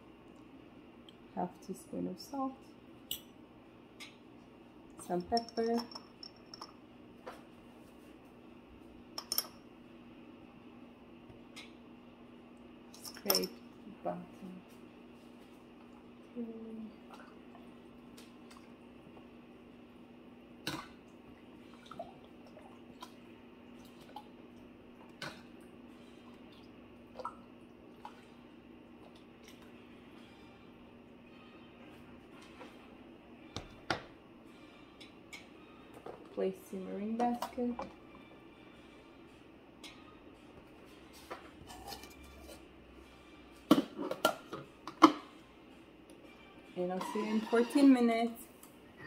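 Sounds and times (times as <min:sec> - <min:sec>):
spatula scraping metal bowl: 0:46.9 - 0:48.1.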